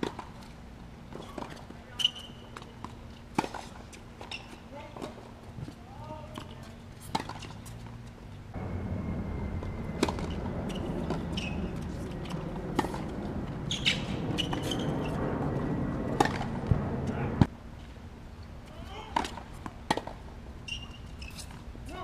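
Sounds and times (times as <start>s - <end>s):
low steady rumble: 8.2s - 18.3s.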